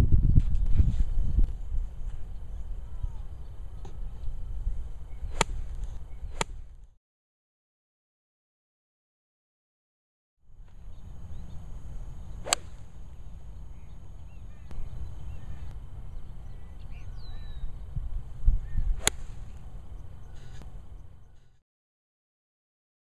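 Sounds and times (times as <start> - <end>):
steady low rumble: 0.0 - 7.0, 10.5 - 21.6
golf club hitting ball: 5.3 - 6.6, 12.4 - 13.2, 19.0 - 19.7.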